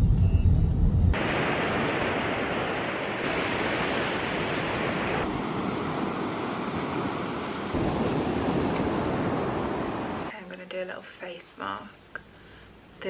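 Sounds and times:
waves washing on pebble beach: 0:01.2 - 0:10.3.

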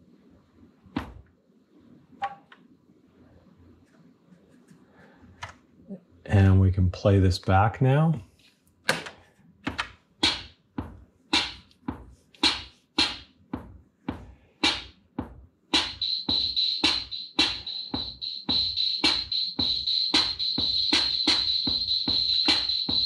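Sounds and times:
drum machine bass drum and snare: 0:00.9 - 0:01.3, 0:10.2 - 0:23.0
high rapid drum machine layer: 0:10.2 - 0:23.0.

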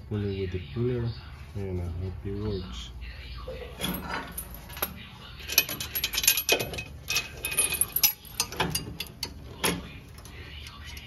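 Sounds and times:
metal clinks: 0:03.8 - 0:09.3.

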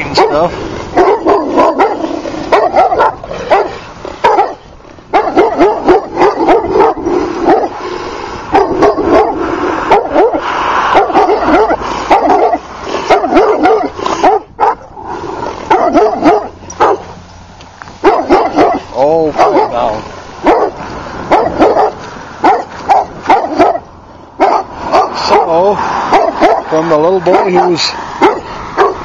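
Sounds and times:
dogs barking: 0:00.0 - 0:07.8, 0:08.5 - 0:17.2, 0:18.0 - 0:29.0.

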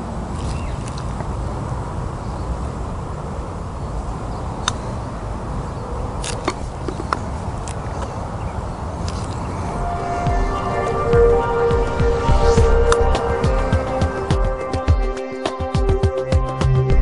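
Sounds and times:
low background rumble: 0:09.4 - 0:15.1.

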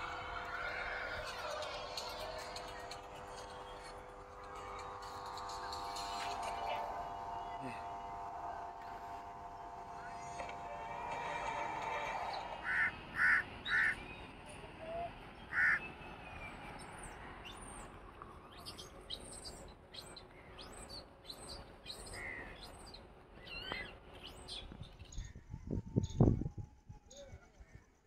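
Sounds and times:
small birds twittering: 0:00.0 - 0:26.4
crow cawing: 0:11.2 - 0:14.0, 0:15.5 - 0:15.8.

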